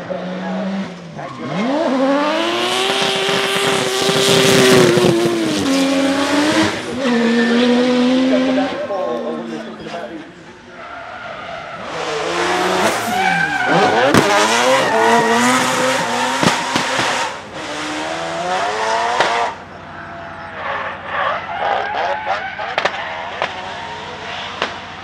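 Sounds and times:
car engine revving hard: 0:00.0 - 0:09.6, 0:11.7 - 0:25.0
tyres squealing: 0:10.6 - 0:17.4.

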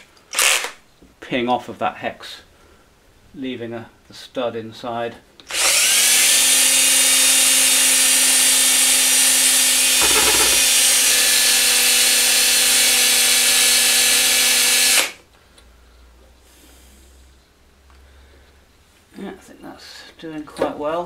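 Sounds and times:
electric drill boring metal: 0:10.0 - 0:11.4.

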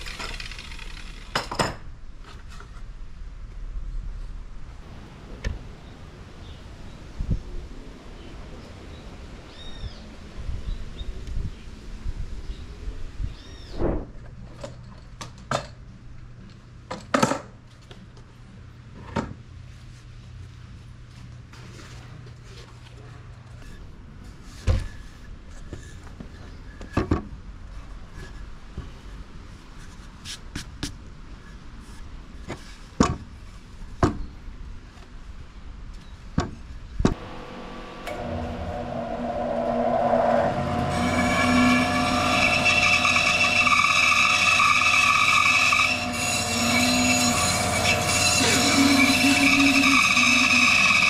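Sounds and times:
band saw running with whine: 0:37.2 - 0:51.0.

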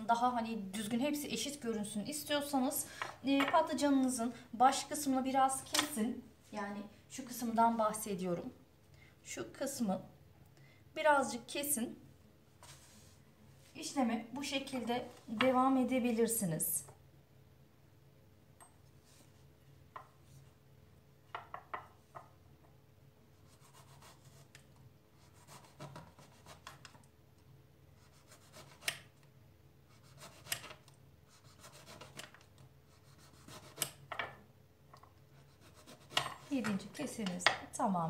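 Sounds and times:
knife slicing eggplant: 0:25.2 - 0:26.9, 0:28.0 - 0:29.1, 0:29.9 - 0:32.4, 0:33.0 - 0:34.0, 0:35.4 - 0:36.8.

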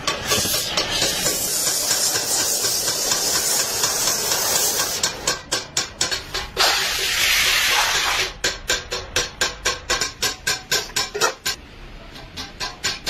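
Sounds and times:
gas torch hissing: 0:00.3 - 0:05.1, 0:06.6 - 0:08.3
steam sizzling in water: 0:00.3 - 0:05.1, 0:06.6 - 0:08.3.

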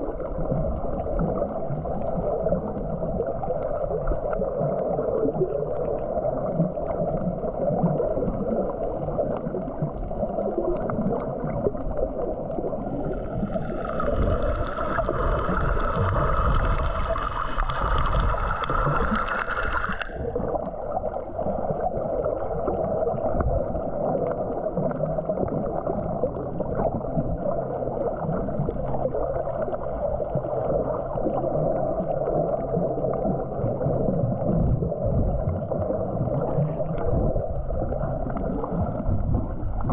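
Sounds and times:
muffled underwater churning: 0:00.0 - 0:39.9.

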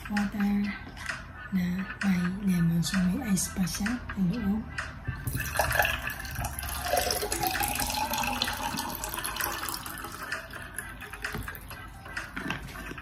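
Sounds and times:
water pouring into a glass: 0:05.3 - 0:11.2.

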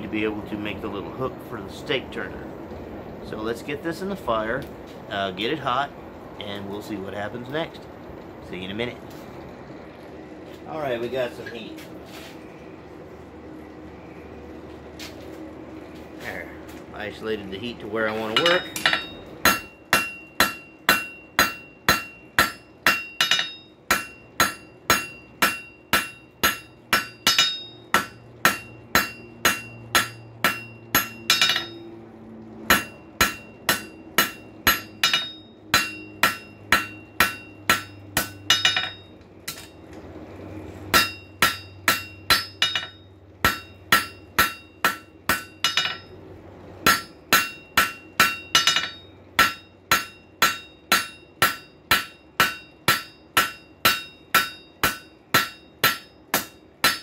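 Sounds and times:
hammer blows on anvil: 0:18.3 - 0:31.9, 0:32.7 - 0:39.8, 0:40.9 - 0:46.1, 0:46.8 - 0:57.0.

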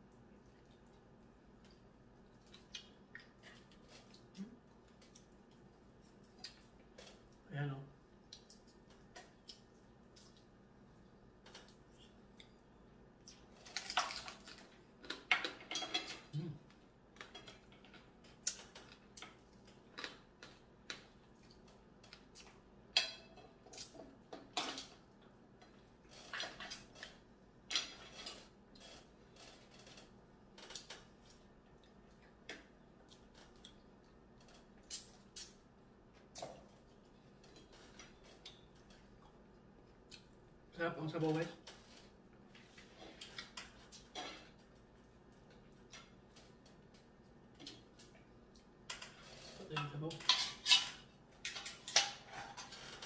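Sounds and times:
wet eating noises: 0:00.0 - 0:22.9.

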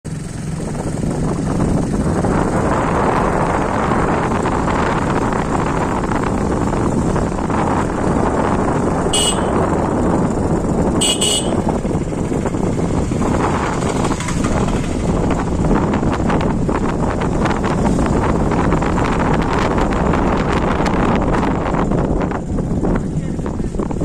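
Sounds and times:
vehicle road and wind rumble: 0:00.1 - 0:24.0
short high horn beeps: 0:09.2 - 0:09.6, 0:11.0 - 0:11.7.

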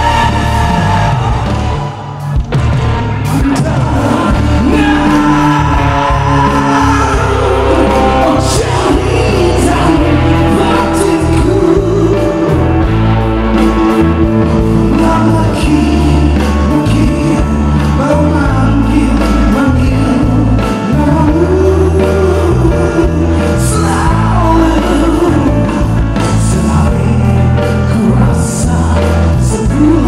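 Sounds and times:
live rock band playing: 0:00.0 - 0:30.0
man singing: 0:03.2 - 0:12.9, 0:13.8 - 0:30.0.

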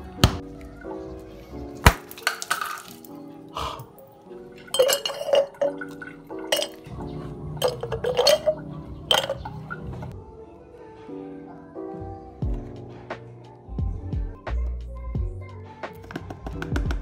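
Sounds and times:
soft background music: 0:00.0 - 0:17.0
ice clinking into glass jar: 0:02.1 - 0:03.1, 0:04.6 - 0:07.0, 0:07.6 - 0:10.1.

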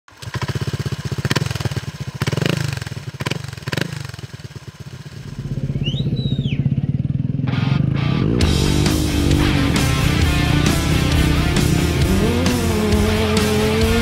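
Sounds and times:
motorcycle engine idling: 0:00.1 - 0:14.0
high gliding tone: 0:05.2 - 0:14.0.

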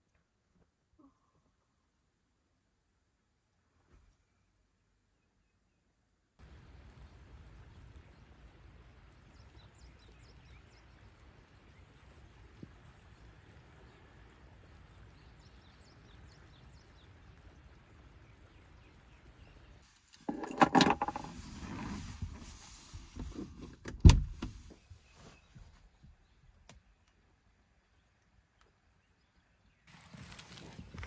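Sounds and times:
faint outdoor background: 0:00.0 - 0:31.0
rustling and knocking in a car: 0:20.2 - 0:26.4
sliding car door clunk: 0:20.3 - 0:24.7.

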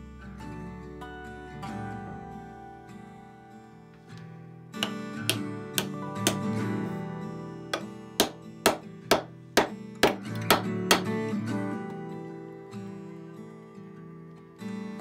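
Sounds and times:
acoustic guitar music: 0:00.0 - 0:15.0
hammer striking wooden handle: 0:04.8 - 0:06.5, 0:07.8 - 0:11.2.

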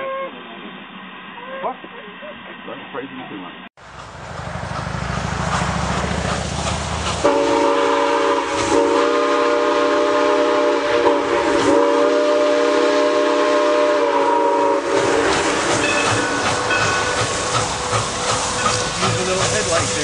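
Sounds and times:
steam locomotive rumbling: 0:03.8 - 0:20.0
locomotive chime whistle: 0:15.8 - 0:20.0.

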